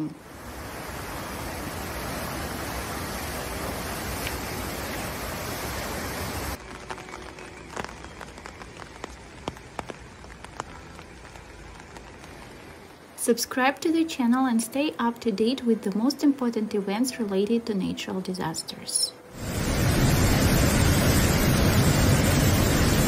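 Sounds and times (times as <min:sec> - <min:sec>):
river rushing: 0:00.0 - 0:08.6.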